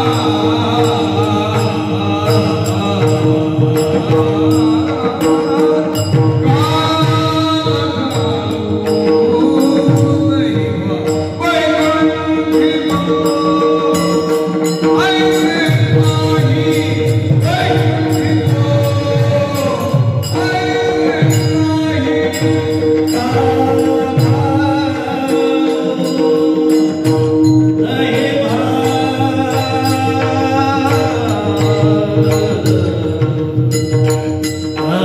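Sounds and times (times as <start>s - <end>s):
men singing in chorus: 0.0s - 33.8s
hand cymbals jingling: 0.0s - 35.0s.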